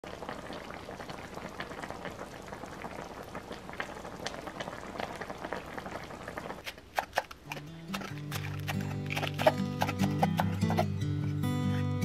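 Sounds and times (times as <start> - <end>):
stew bubbling in a pan: 0.0 - 11.4.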